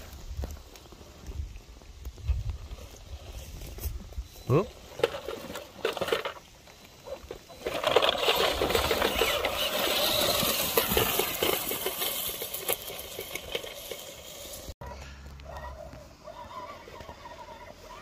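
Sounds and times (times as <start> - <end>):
small electric motor whirring: 6.1 - 14.8, 15.5 - 18.0.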